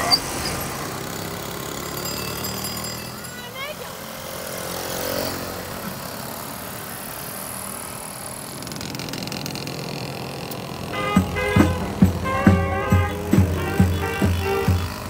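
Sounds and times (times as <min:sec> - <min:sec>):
moped engine running: 0:00.0 - 0:15.0
band playing: 0:10.9 - 0:15.0
drum beats: 0:11.0 - 0:15.0.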